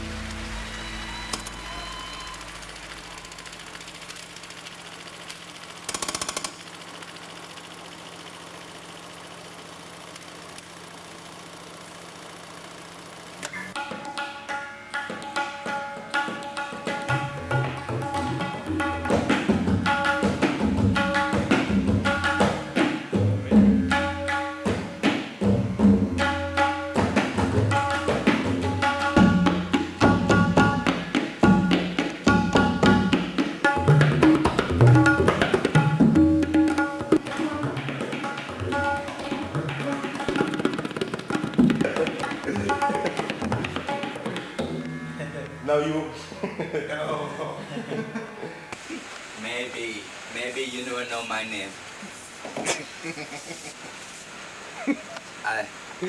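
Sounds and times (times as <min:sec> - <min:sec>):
held instrument notes: 0:00.0 - 0:03.4, 0:42.4 - 0:46.5
drums and percussion: 0:00.0 - 0:08.5, 0:13.5 - 0:45.7.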